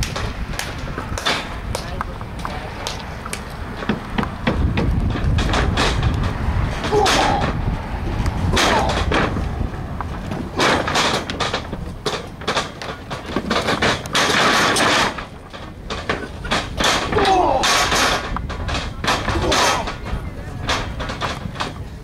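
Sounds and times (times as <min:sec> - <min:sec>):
slaps and thuds: 0:02.8 - 0:09.5
person shouting: 0:06.9 - 0:07.5, 0:17.1 - 0:17.7.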